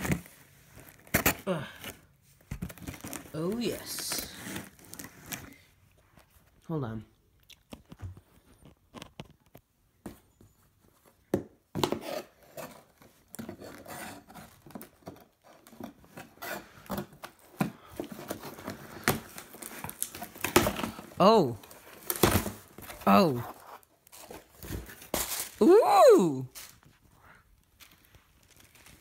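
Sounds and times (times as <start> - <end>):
packing tape scraped and slit: 2.8 - 5.6, 11.9 - 17.4, 23.4 - 25.6.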